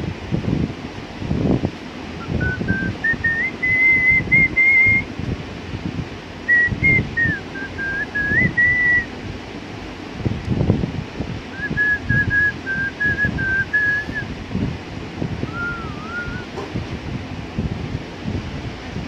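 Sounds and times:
low rumbling microphone noise: 0.0 - 19.0
person whistling a slow tune: 2.2 - 5.0, 6.5 - 9.1, 11.6 - 14.2, 15.5 - 16.6.

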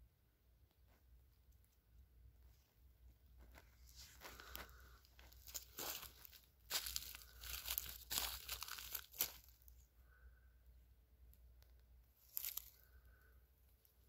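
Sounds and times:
footsteps crunching dry straw: 3.4 - 9.7, 12.2 - 12.8.

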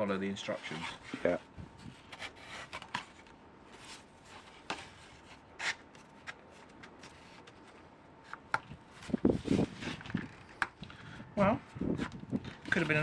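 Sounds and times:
foam parts rubbing and clicking: 11.9 - 13.0.

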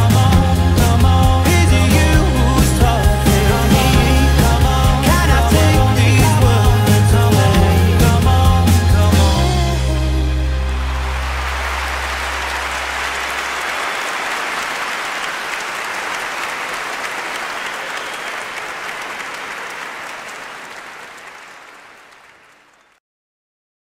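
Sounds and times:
song ending low notes: 0.0 - 13.3
crowd applauding: 10.2 - 23.0.

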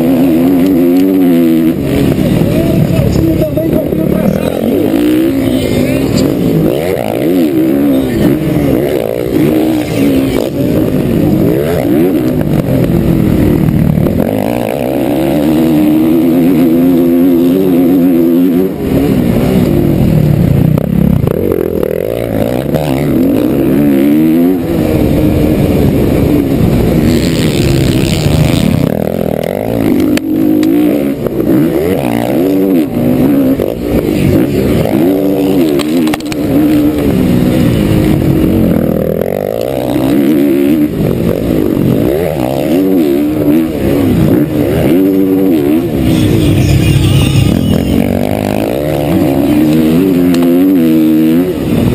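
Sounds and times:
motocross bike engine revving: 0.0 - 51.9.

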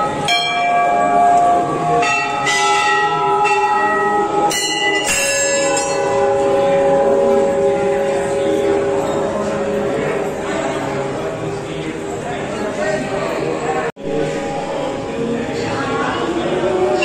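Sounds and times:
brass bell ringing: 0.0 - 12.3.

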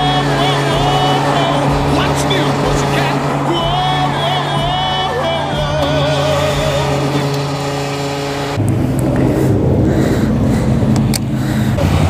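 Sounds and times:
song with male singer: 0.0 - 7.7
motorcycle engine idling: 0.0 - 12.0
sharp clicks: 10.9 - 11.4.

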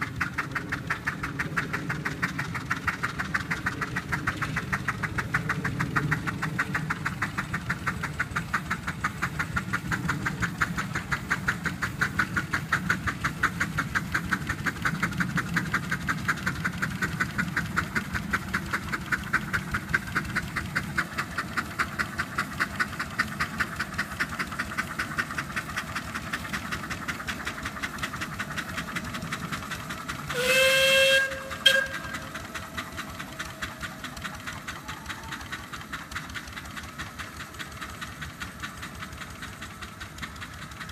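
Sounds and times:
steam locomotive exhaust beats: 0.0 - 40.9
steam whistle: 30.3 - 32.4.

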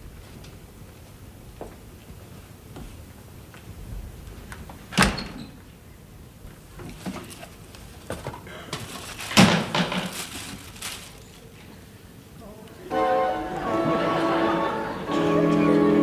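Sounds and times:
door shutting: 4.9 - 5.6.

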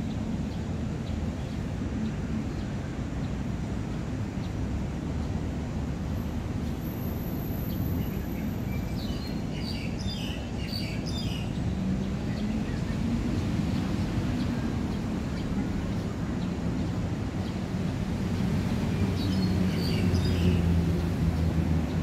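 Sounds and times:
distant traffic rumble: 0.0 - 22.0
birds chirping: 7.7 - 22.0.

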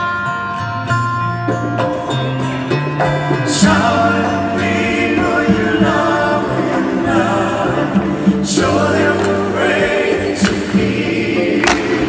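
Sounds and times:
acoustic guitar: 0.0 - 12.0
live band playing: 0.0 - 12.0
gospel-style choir singing: 3.0 - 12.0.

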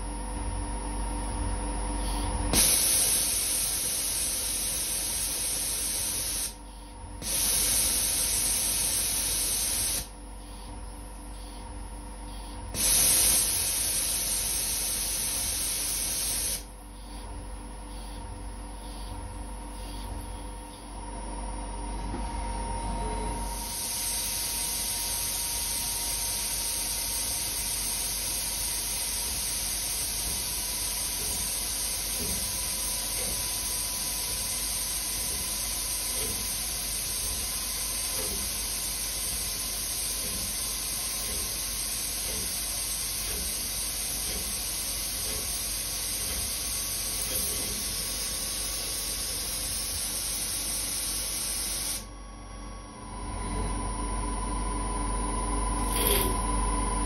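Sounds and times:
coolant jet hissing: 2.5 - 6.6, 7.2 - 10.1, 12.7 - 16.7, 23.6 - 52.0.

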